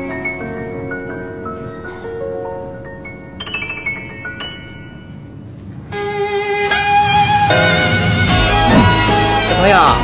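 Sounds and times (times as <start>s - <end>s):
gentle bell-like keyboard music: 0.0s - 5.7s.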